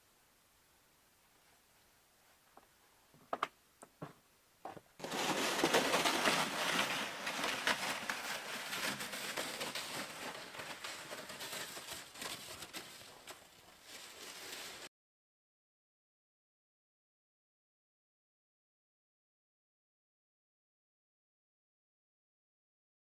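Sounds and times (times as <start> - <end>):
sled hissing over snow: 5.0 - 14.9
boots crunching through snow: 11.6 - 14.9.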